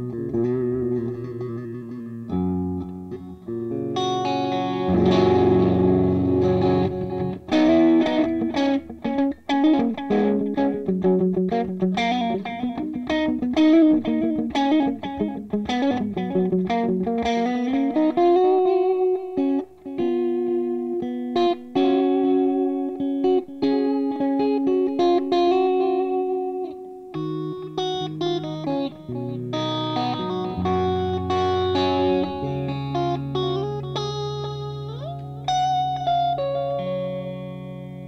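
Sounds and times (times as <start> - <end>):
electric guitar with crunch tone: 0.0 - 38.0.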